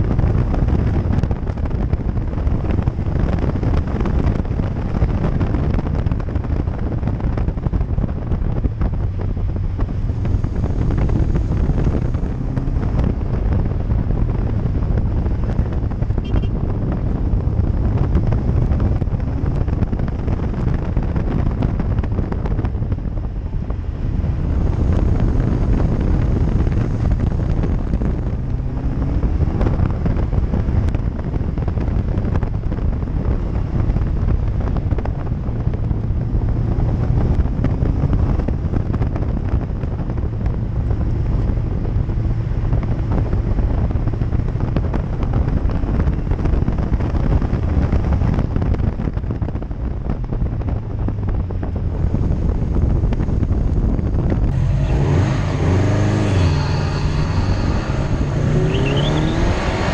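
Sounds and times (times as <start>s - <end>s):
car engine: 0.0s - 59.9s
tyres on road: 0.0s - 59.9s
wind buffeting microphone: 0.0s - 59.9s.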